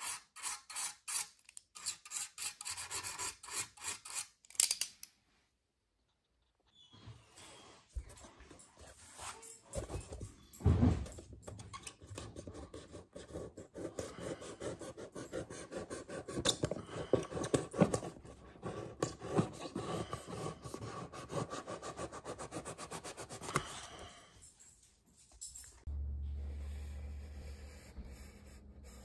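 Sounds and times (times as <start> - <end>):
knife scraping hot glue: 0.0 - 4.4
thump: 10.6 - 11.2.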